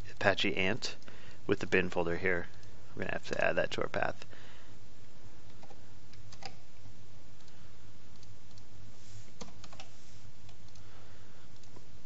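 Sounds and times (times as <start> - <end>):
mouse clicks: 9.4 - 10.9.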